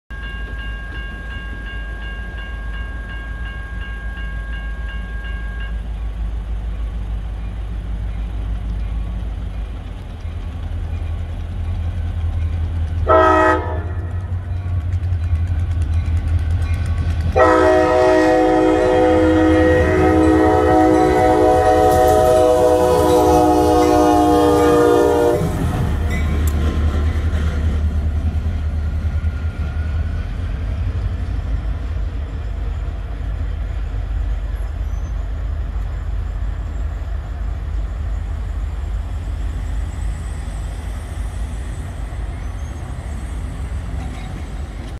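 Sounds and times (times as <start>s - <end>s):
locomotive bell ringing: 0.1s - 25.4s, 26.0s - 26.6s
air horn blasts: 13.0s - 14.2s, 17.4s - 25.6s.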